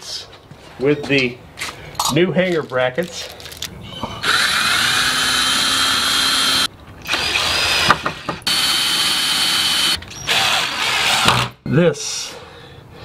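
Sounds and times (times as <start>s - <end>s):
cordless drill motor whining: 4.2s - 11.3s.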